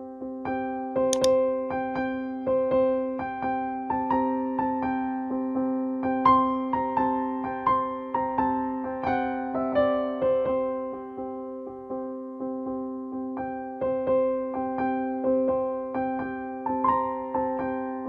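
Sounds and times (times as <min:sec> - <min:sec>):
gentle keyboard tune: 0:01.2 - 0:01.4.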